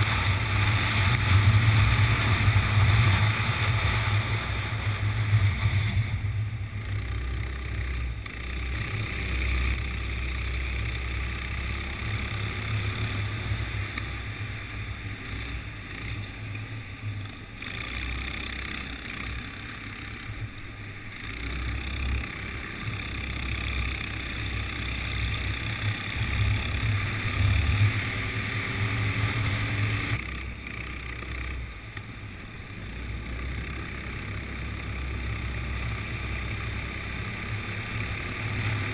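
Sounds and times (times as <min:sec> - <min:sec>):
heavy low rumble: 0:00.0 - 0:08.3
go-kart engine running: 0:00.0 - 0:38.9.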